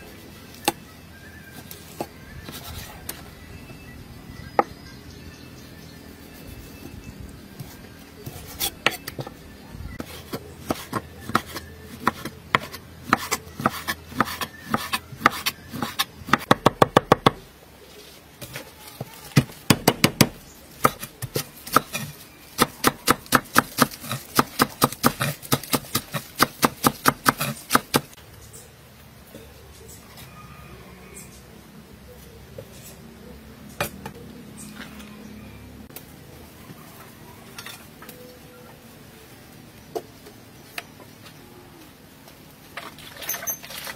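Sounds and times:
cleaver chopping on wooden board: 0:22.6 - 0:28.1.

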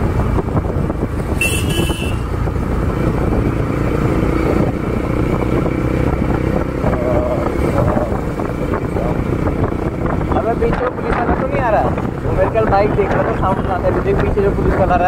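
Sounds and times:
motorcycle engine accelerating: 0:00.0 - 0:15.0.

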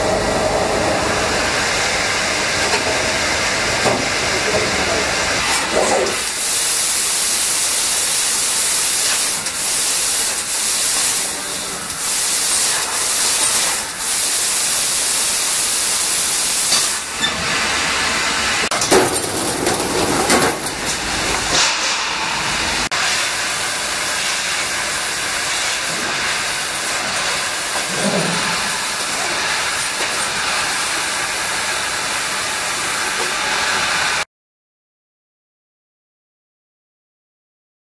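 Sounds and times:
laser cutting machine hissing: 0:00.1 - 0:18.7, 0:20.9 - 0:34.2.

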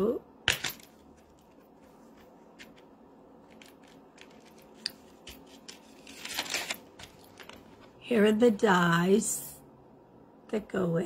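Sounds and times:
packaging rustling and clicking: 0:00.6 - 0:07.9
packaging crinkling: 0:02.6 - 0:07.9.

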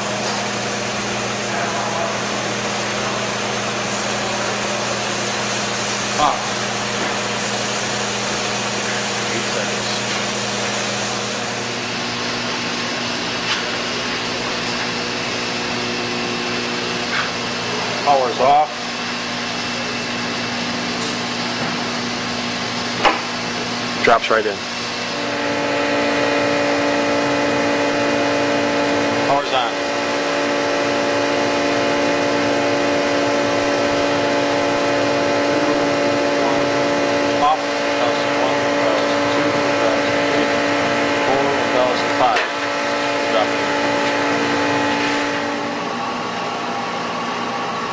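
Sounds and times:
induction heater hum and hiss: 0:00.0 - 0:47.9
fan-like rush: 0:24.7 - 0:47.7.

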